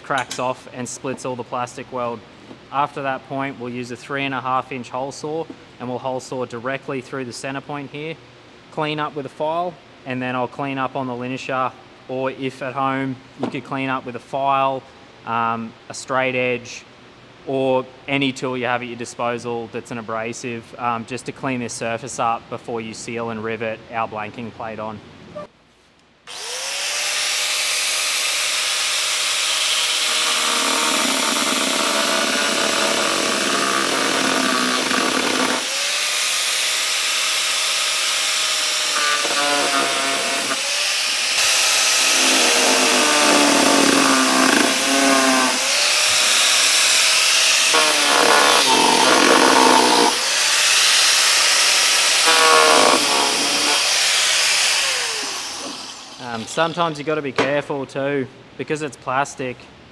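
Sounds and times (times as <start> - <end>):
angle grinder cutting plastic: 26.3 - 57.0.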